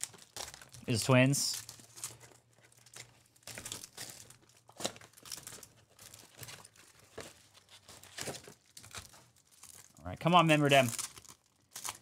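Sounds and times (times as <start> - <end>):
card wrappers crinkling and tearing: 0.0 - 12.0.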